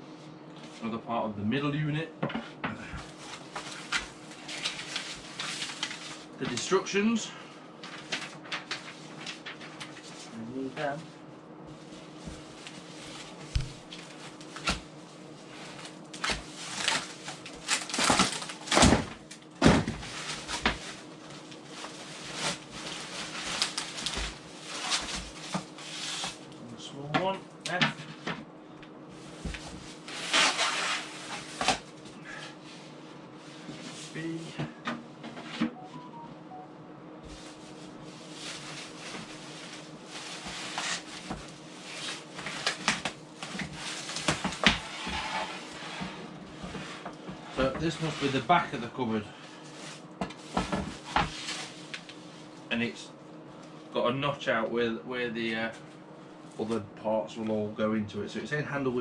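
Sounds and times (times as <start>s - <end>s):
plastic wrap rustling and crinkling: 3.1s - 6.4s, 7.8s - 10.3s, 15.4s - 26.4s, 37.3s - 48.5s
plastic wrap crinkling: 15.7s - 19.5s, 20.1s - 25.6s.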